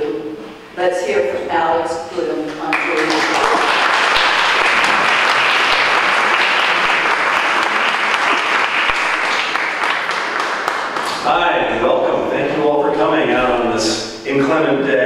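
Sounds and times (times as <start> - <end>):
audience applauding: 2.7 - 11.4.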